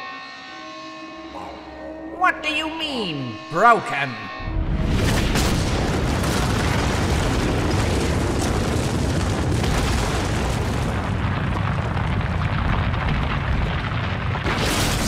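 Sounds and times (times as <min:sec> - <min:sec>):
rumble of crumbling ice and rock: 0:04.8 - 0:15.0.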